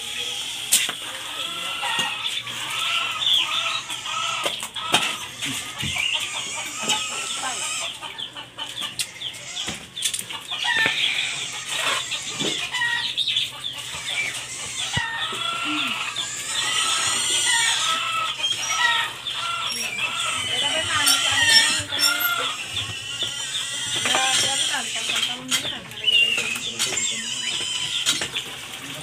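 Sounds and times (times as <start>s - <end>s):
chickens clucking: 0.0s - 29.0s.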